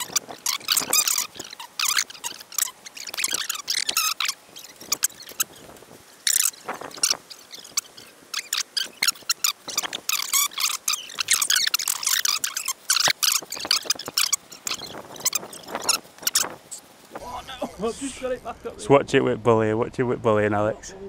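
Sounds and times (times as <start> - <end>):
fishing reel drag buzzing: 17.2 - 18.8.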